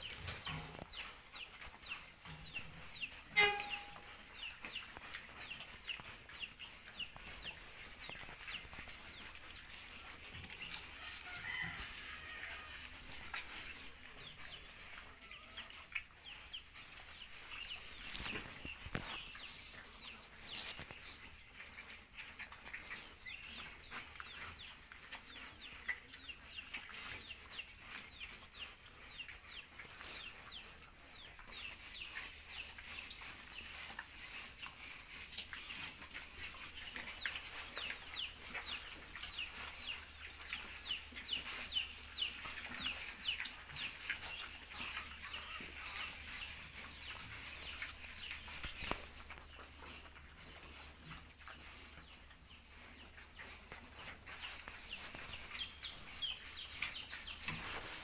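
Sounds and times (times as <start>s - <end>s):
poultry peeping: 0.0s - 58.0s.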